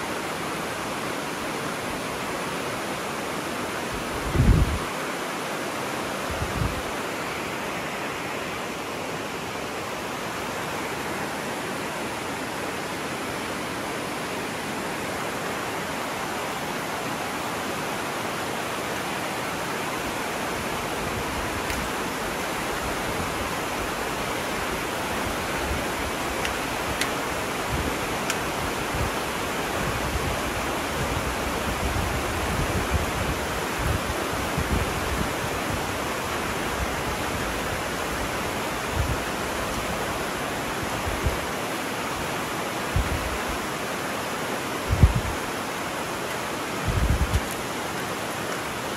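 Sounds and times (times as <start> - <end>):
river rapids rushing: 0.0 - 48.9.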